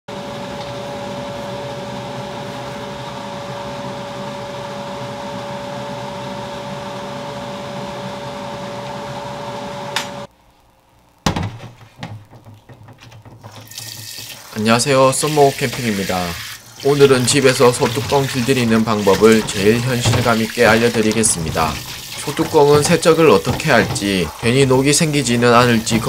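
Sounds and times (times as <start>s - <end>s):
extractor fan humming: 0.1s - 10.3s, 14.4s - 26.0s
griddle knocking in metal sink: 11.3s - 14.4s, 16.9s - 26.0s.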